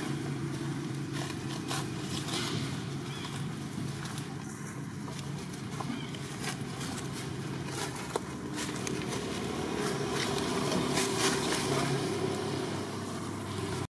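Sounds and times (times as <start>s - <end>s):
motor engine running: 0.0s - 13.9s.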